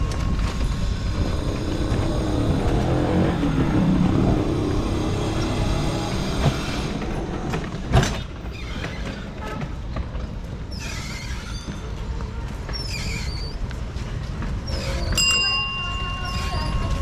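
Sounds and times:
rickshaw rattling over road: 0.0 - 10.7
short high-pitched squeaks: 12.7 - 13.6, 14.6 - 15.3, 16.2 - 17.0.

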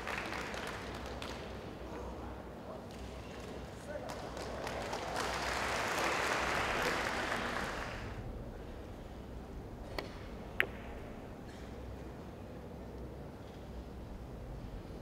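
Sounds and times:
audience applause: 0.0 - 1.4, 4.2 - 8.2.

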